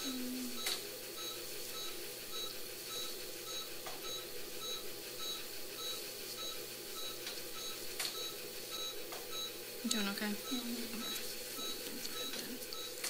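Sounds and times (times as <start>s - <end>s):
monitor beeping: 0.0s - 13.0s.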